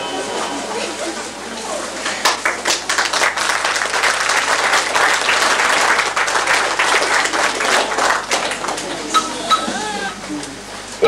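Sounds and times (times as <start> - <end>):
crowd applauding: 2.2 - 9.3.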